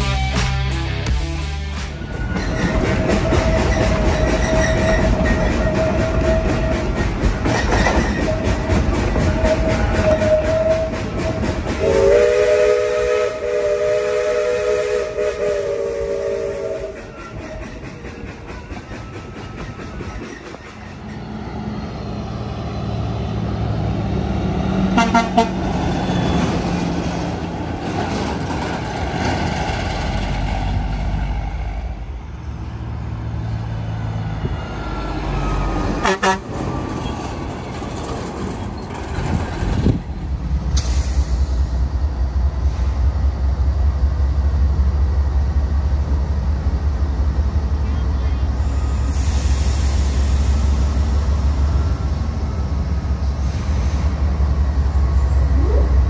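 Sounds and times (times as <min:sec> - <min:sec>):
diesel train engine rumble: 0:00.0 - 0:56.0
sharp train clanks: 0:01.4 - 0:32.2, 0:34.4 - 0:55.8
locomotive air horn chord: 0:11.8 - 0:17.0, 0:25.0 - 0:25.7, 0:36.0 - 0:36.5.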